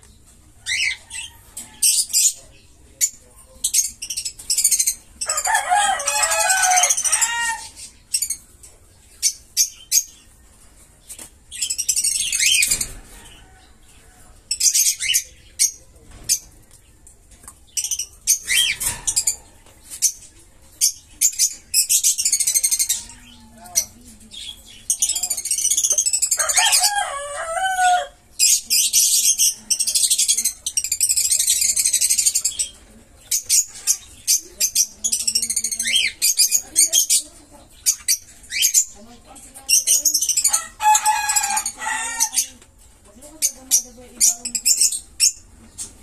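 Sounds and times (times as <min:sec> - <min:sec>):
budgerigars chirping: 0:00.6 - 0:10.4, 0:11.5 - 0:13.4, 0:17.7 - 0:20.2, 0:27.7 - 0:42.6, 0:43.2 - 0:46.0.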